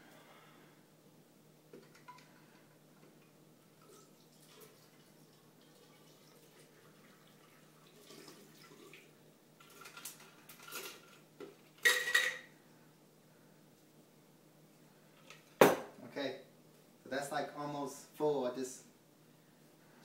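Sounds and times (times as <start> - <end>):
drink pouring into funnel: 3.7 - 10.9.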